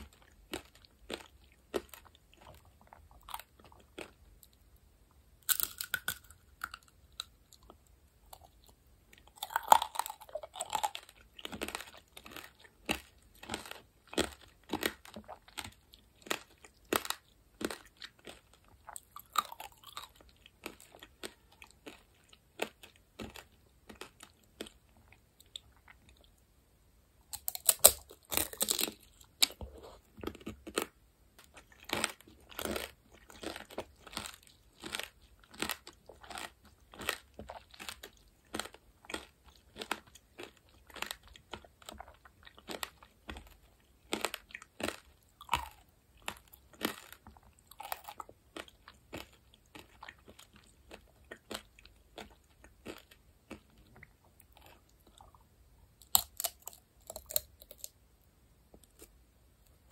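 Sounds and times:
chewing crunches: 0.0 - 4.6, 5.4 - 26.3, 27.3 - 55.4, 56.0 - 58.0
candy shell cracking bite: 5.4 - 6.9, 27.4 - 29.6, 56.0 - 58.0.

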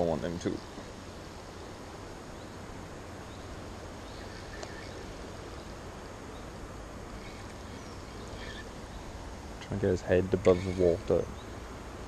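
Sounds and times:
river flowing: 0.0 - 12.0
wind: 0.0 - 12.0
faint bird chirps: 1.6 - 11.7
faint click: 4.6 - 4.8.

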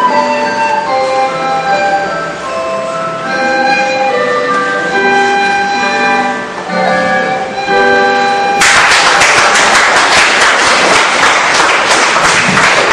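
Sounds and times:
recorder playing sustained notes: 0.0 - 9.0
audience applause: 8.6 - 12.9.

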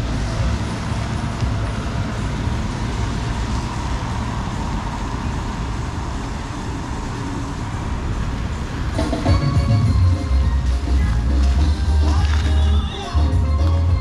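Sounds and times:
vehicle engine rumble: 0.0 - 14.0.

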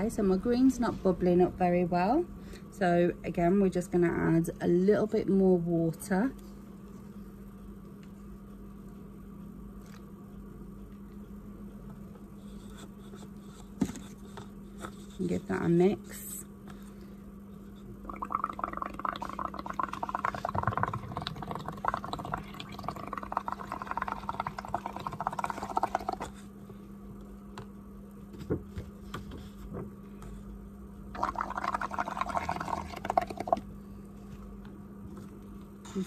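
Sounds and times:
bubbles gurgling through straw: 18.0 - 26.4, 31.1 - 33.7.

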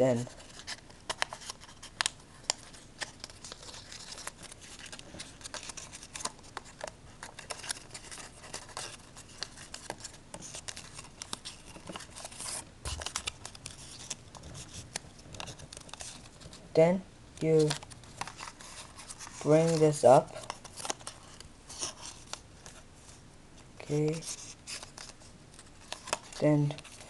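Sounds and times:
paper being folded and creased: 0.3 - 16.6, 17.5 - 23.2, 23.9 - 27.0.

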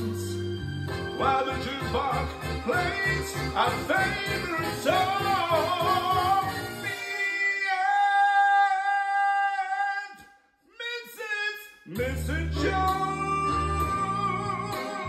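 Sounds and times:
instrumental backing: 0.0 - 7.2, 12.0 - 15.0
person singing: 0.0 - 10.2, 11.2 - 15.0.

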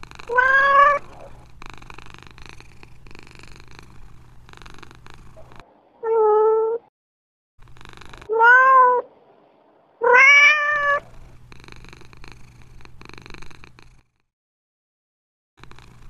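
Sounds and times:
cat purring: 0.0 - 6.9, 7.6 - 14.2, 15.6 - 16.0
cat meowing: 0.3 - 1.3, 6.0 - 6.9, 8.3 - 9.1, 10.0 - 11.1.

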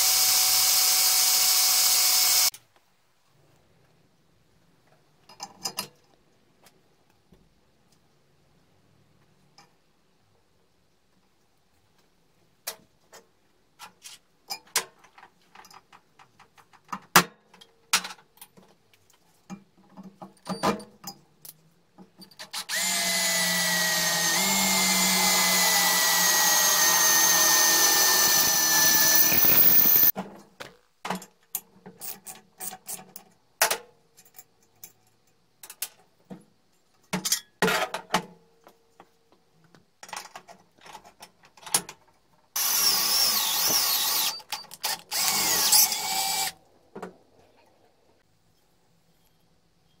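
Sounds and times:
power drill boring through steel: 0.0 - 2.5, 22.6 - 30.1, 42.6 - 46.6.

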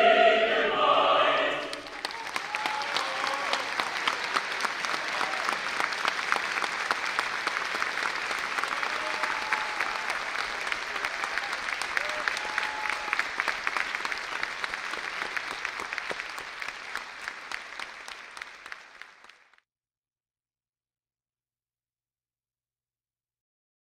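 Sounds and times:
audience applause: 1.6 - 19.6.

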